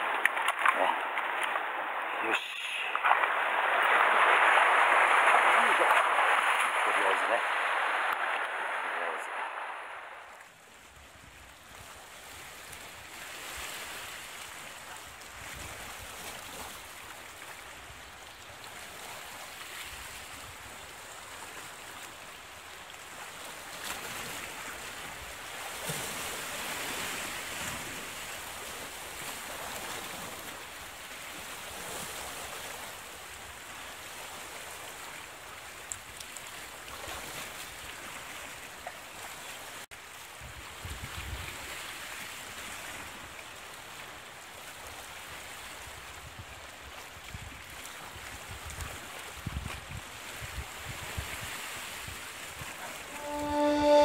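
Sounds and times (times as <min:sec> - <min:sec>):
waves washing on rocks: 0:00.0 - 0:10.6, 0:18.7 - 0:49.5.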